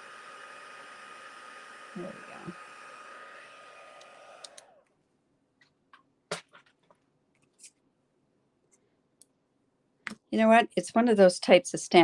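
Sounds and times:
heat tool fan whining: 0.0s - 4.9s.

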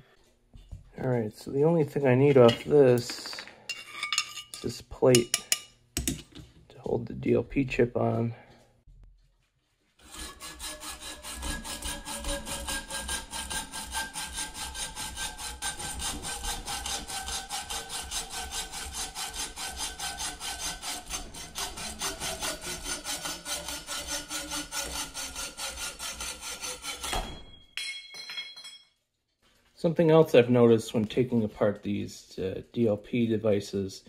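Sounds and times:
hacksaw cutting metal: 10.0s - 27.5s.

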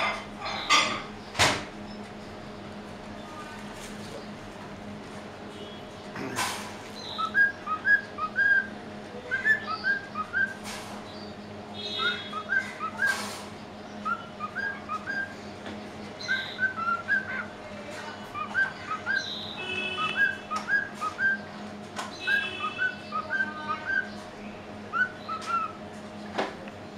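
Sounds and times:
cockatiel whistling: 7.2s - 8.7s, 9.3s - 10.6s, 12.0s - 13.2s, 14.0s - 15.3s, 16.3s - 17.4s, 20.0s - 21.4s, 24.9s - 25.8s.

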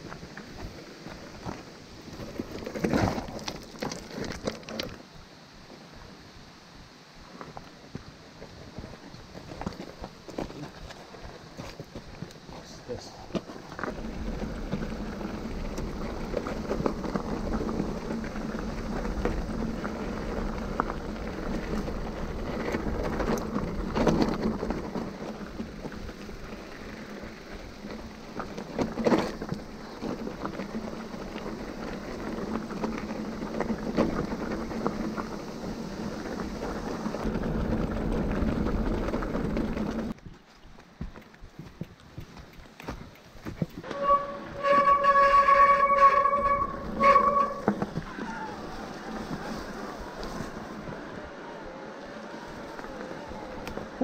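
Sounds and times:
bike tyres crunching on gravel: 0.0s - 6.1s, 7.2s - 54.0s
bike rattling and knocking: 13.3s - 49.6s.

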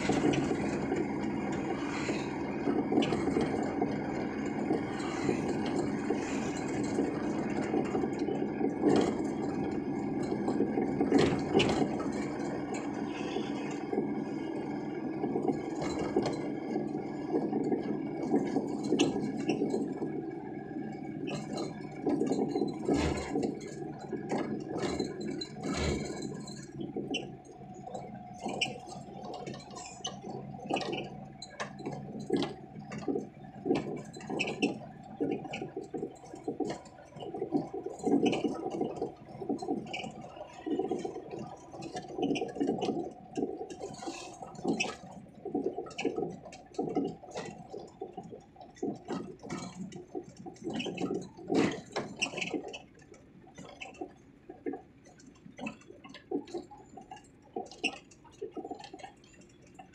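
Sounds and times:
truck body rattling and knocking: 0.0s - 13.1s, 21.3s - 27.3s
steady engine whine: 0.0s - 35.3s.

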